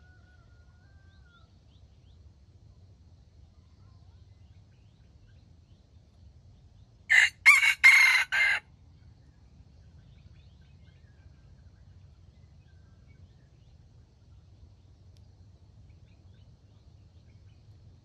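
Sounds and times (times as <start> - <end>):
rooster crowing: 7.1 - 8.6.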